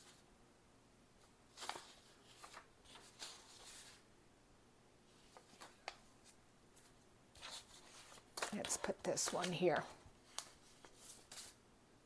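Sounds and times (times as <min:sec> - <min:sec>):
paper pages rustling: 0:01.2 - 0:04.0, 0:05.1 - 0:11.6.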